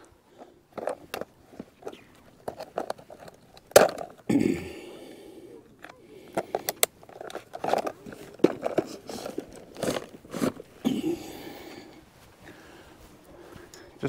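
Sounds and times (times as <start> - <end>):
plastic box clicking shut: 1.9 - 4.2
fabric bag rustling: 7.0 - 13.7.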